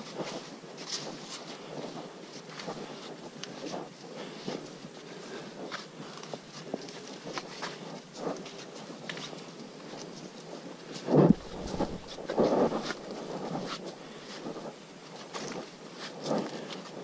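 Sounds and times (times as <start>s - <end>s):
steady hiss: 11.0s - 17.0s
footsteps on dirt trail: 11.2s - 14.7s.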